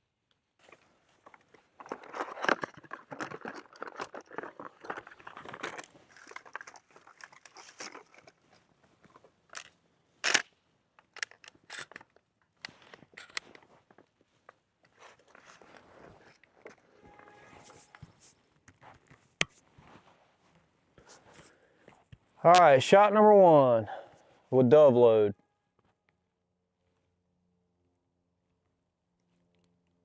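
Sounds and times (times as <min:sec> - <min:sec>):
shotgun shells clicking: 0:01.8 - 0:08.4.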